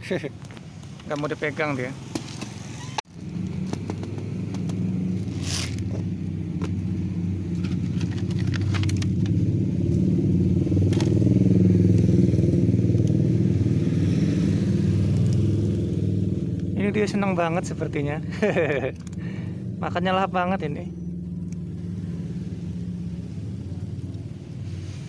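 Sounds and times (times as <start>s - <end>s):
motorcycle engine rumbling: 0.0s - 25.0s.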